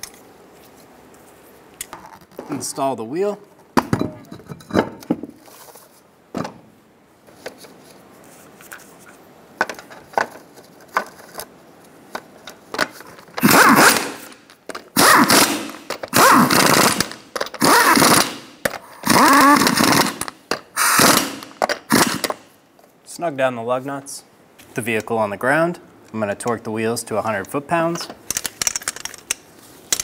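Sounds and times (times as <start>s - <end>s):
impact wrench spinning lug nuts: 12.8s - 22.4s.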